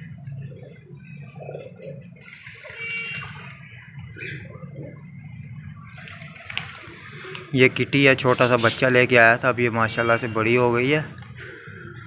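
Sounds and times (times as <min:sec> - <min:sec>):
pigeons splashing water: 0:00.0 - 0:09.0.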